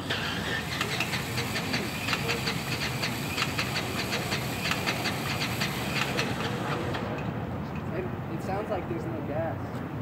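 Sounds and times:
radial aircraft engine cranking: 0.0s - 7.3s.

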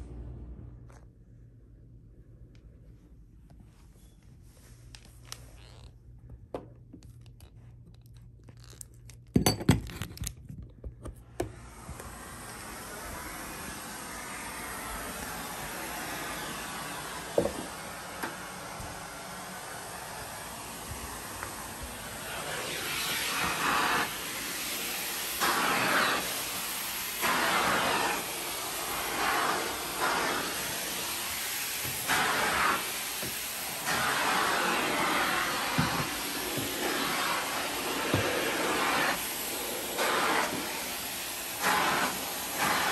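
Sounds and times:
vacuum suction hiss: 11.5s - 42.9s.

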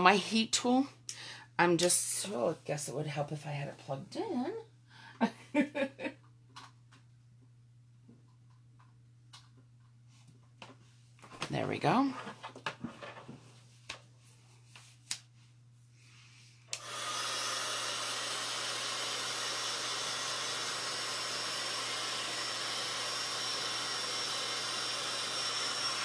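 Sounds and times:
heat tool blowing hot air: 16.7s - 26.0s.

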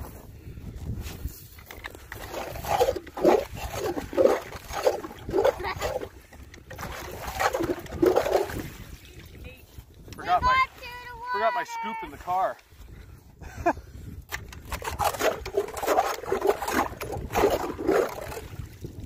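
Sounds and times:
water and slush sloshing: 1.1s - 12.3s, 14.3s - 19.0s
hand auger drilling through ice: 1.4s - 8.8s, 14.3s - 18.7s.

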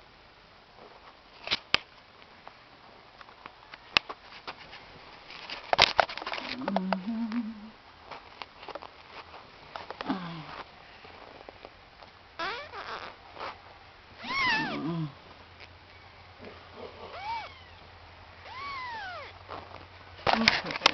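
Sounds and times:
cat meowing: 14.2s - 14.9s, 17.0s - 19.4s.

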